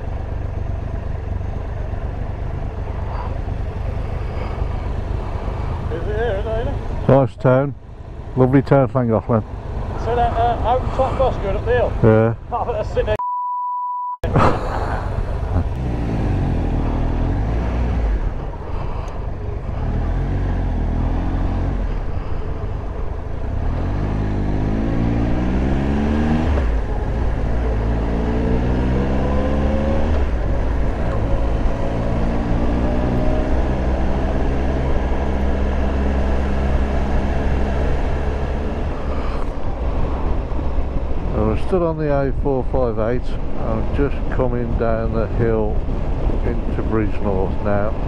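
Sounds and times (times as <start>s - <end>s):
motorcycle engine accelerating: 14.2s - 41.6s.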